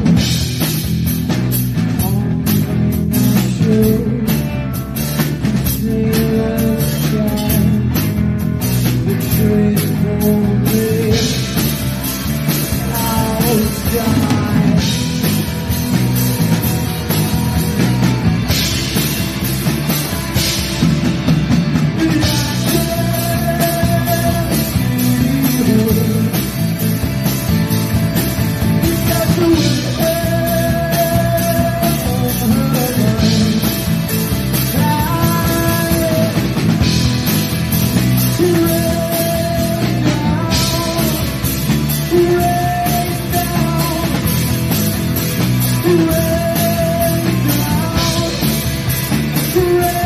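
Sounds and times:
bass guitar: 0:00.0 - 0:50.0
distorted electric guitars: 0:00.0 - 0:50.0
drum kit with cymbals: 0:00.0 - 0:50.0
live rock band playing: 0:00.0 - 0:50.0.

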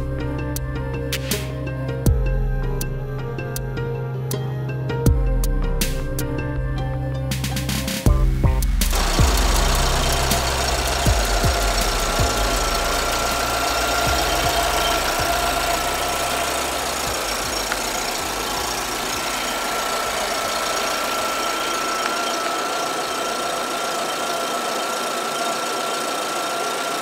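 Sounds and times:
car engine idling: 0:08.5 - 0:27.0
steady high whine: 0:08.9 - 0:27.0.

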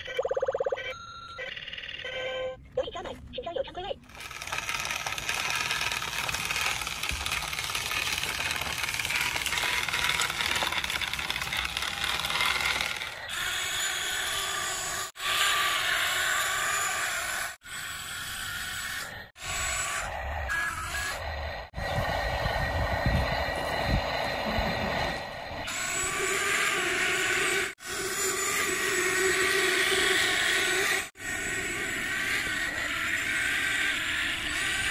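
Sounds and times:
toy trucks scraping over gravel: 0:04.1 - 0:13.4.

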